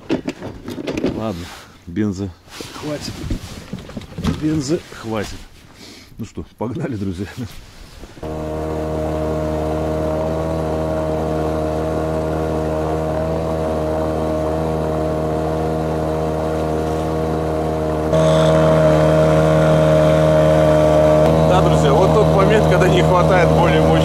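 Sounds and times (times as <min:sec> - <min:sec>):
outboard motor droning: 0:08.2 - 0:24.0.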